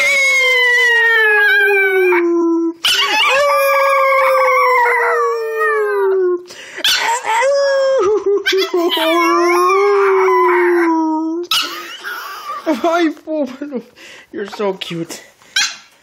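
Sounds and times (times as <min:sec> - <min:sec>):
puppy howling: 0:00.0 - 0:12.6.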